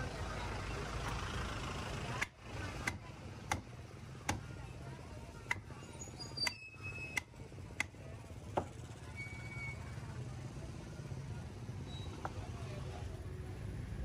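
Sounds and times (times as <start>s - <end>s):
wooden mallet striking knife: 6.4s - 8.7s.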